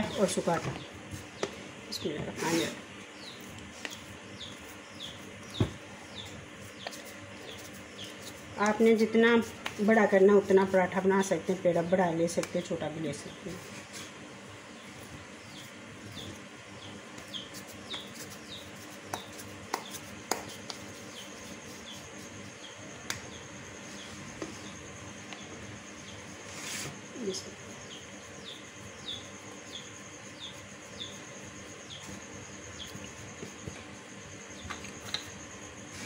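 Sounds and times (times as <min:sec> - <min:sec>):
small bird chirping: 0:00.0 - 0:13.6, 0:14.7 - 0:36.0
hands pressing dough: 0:17.2 - 0:22.1.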